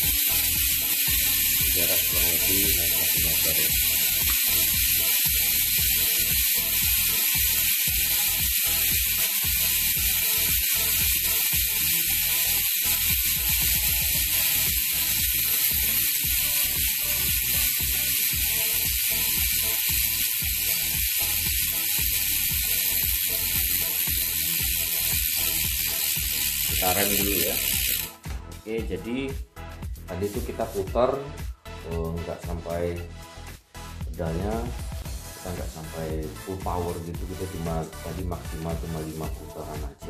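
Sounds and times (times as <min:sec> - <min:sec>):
bicycle freehub ratchet buzz: 0:00.0 - 0:28.2.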